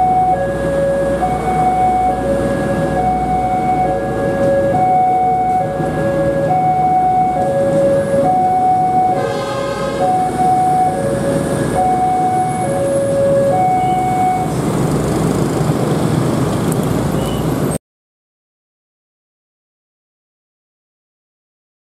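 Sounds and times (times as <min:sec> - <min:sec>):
two-tone crossing alarm: 0:00.0 - 0:14.6
passing railbus: 0:00.0 - 0:17.8
motorcycles idling: 0:00.1 - 0:17.1.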